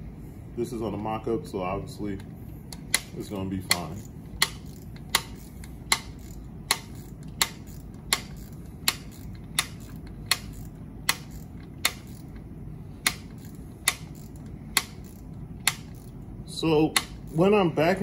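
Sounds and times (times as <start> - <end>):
brake adjuster clicking: 2.2 - 16.2.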